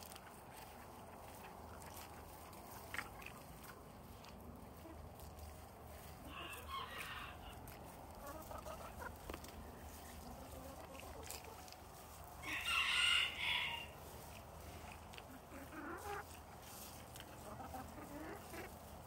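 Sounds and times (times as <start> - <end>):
chickens calling: 0.0 - 19.0.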